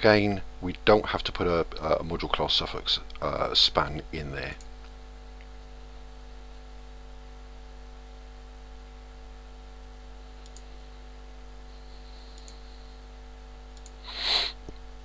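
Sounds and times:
steady electrical hum: 0.0 - 15.0
faint computer mouse clicks: 10.4 - 10.7, 12.4 - 12.6, 13.8 - 14.0.

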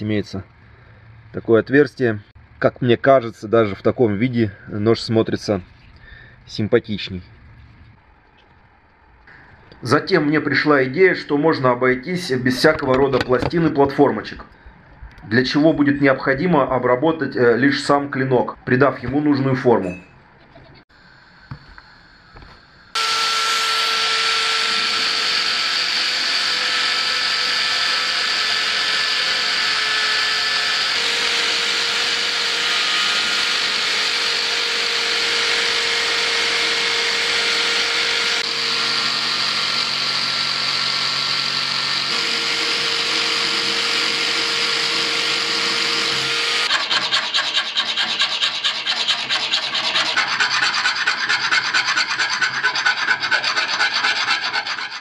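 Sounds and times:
electric drill grinding steel: 22.9 - 55.0
hand file rasping on blade: 24.0 - 41.4, 42.0 - 55.0.

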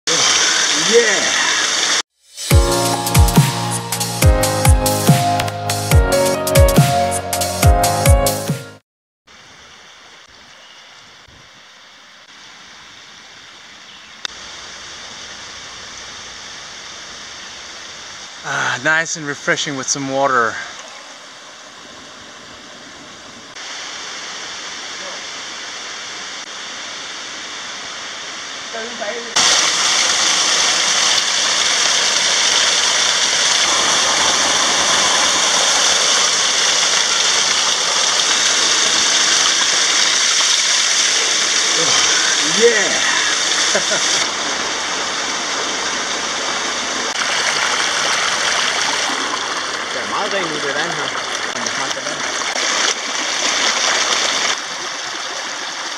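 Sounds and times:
waterfall rushing: 0.1 - 5.6, 23.5 - 55.9.

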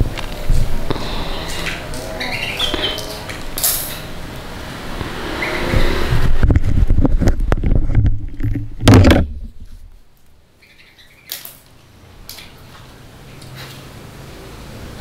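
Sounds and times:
low rumble with knocking: 5.0 - 9.8.

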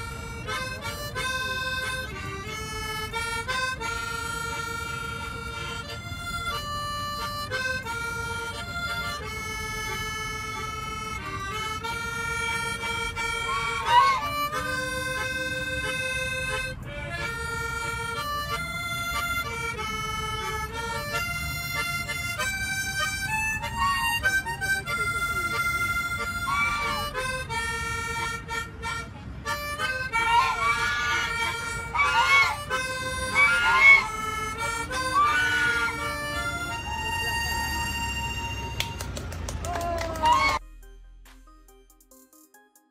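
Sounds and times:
harmonica playing slow melody: 0.0 - 39.0
geese honking: 12.8 - 16.0, 26.2 - 27.4, 29.5 - 37.8, 40.2 - 40.6.

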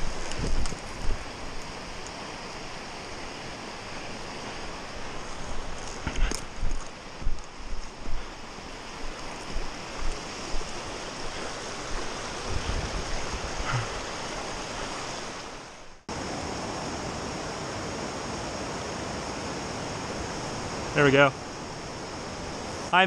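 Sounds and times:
rushing creek water: 0.0 - 23.0.

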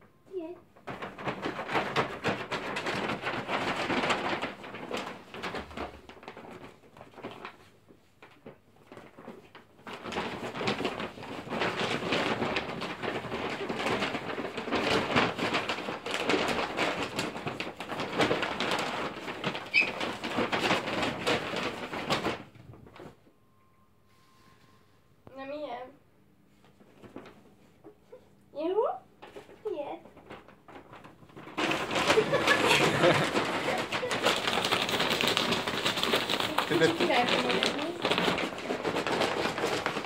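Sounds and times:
paper bag crinkling: 0.8 - 23.2, 26.6 - 27.9, 29.2 - 40.0.

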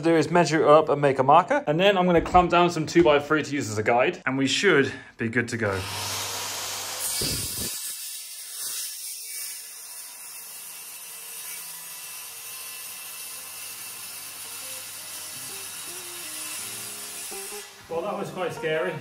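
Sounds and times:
power saw cutting plywood: 5.7 - 18.2.

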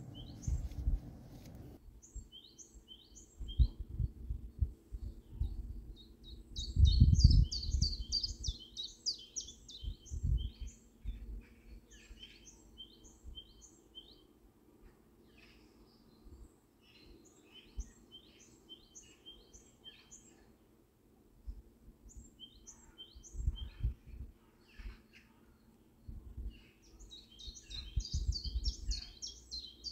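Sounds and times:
small bird chirping: 0.0 - 1.0, 2.0 - 14.2, 26.4 - 29.9.

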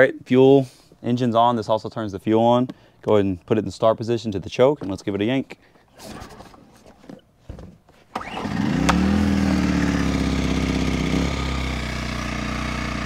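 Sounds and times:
generator engine starting and running: 8.1 - 13.0.

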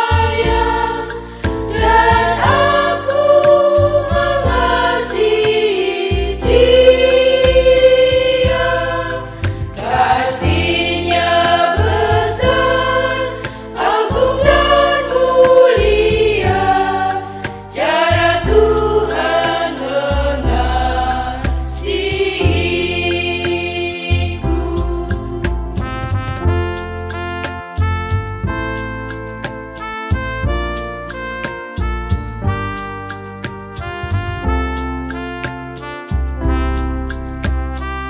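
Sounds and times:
women's choir singing a hymn: 0.0 - 25.9
instrumental backing with low bass: 0.0 - 38.0.

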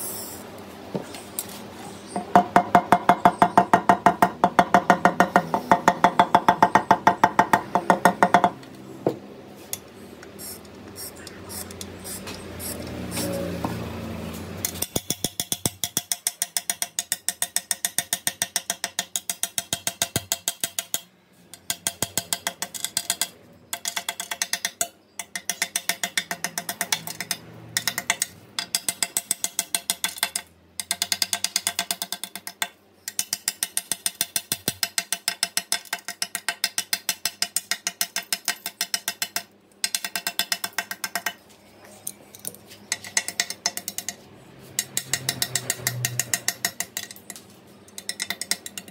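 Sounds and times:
metal tapping on glass: 48.0 - 48.9.

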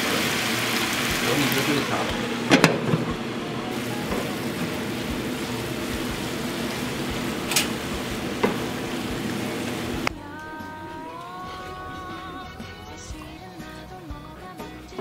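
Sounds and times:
cabbage sizzling in a pan: 0.0 - 10.1.

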